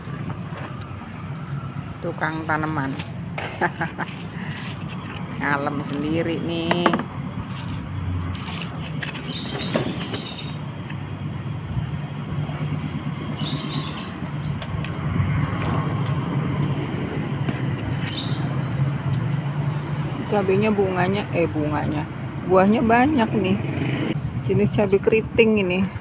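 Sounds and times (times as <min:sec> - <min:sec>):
rustling scrapes: 0:04.0 - 0:06.2, 0:07.4 - 0:10.0.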